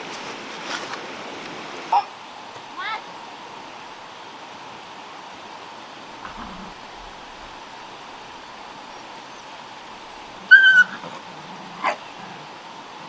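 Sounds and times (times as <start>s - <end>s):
puppy yelping: 10.1s - 11.2s, 11.8s - 12.2s.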